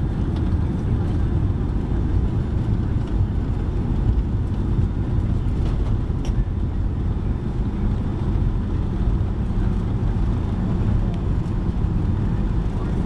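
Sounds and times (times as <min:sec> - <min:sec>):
aircraft engine noise: 0:00.0 - 0:13.0
wheels rumbling: 0:00.0 - 0:13.0.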